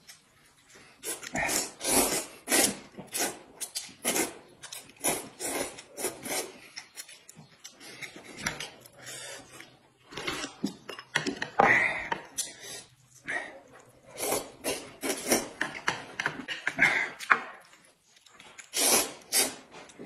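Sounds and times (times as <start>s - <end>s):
people slurping noodles: 1.0s - 6.6s, 11.7s - 15.6s, 18.7s - 19.7s.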